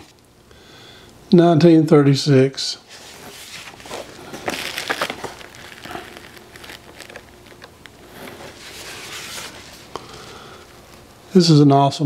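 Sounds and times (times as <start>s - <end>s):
paper pages rustling: 2.9s - 9.9s.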